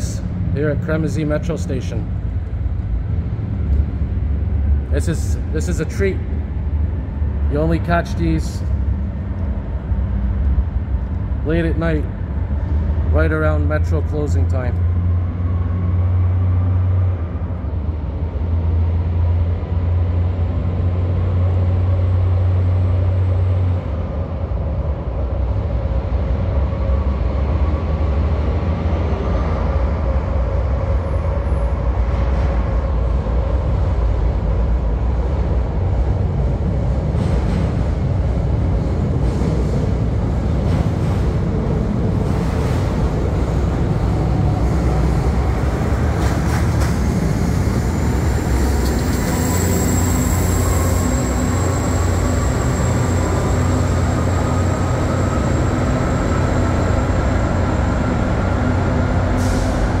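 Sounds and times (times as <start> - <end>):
rail vehicle rumbling: 0.0 - 60.0
faint rising whine: 47.3 - 60.0.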